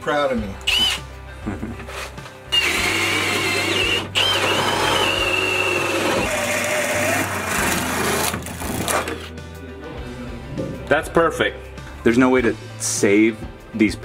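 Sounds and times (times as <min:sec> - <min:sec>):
cordless drill whining: 0:00.6 - 0:01.0, 0:02.5 - 0:08.4.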